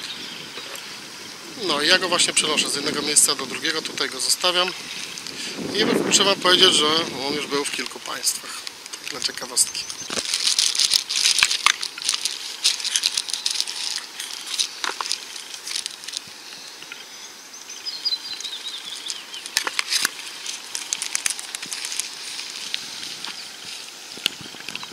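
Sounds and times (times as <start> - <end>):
plastic and cards rustling: 7.4 - 16.3, 18.9 - 24.9.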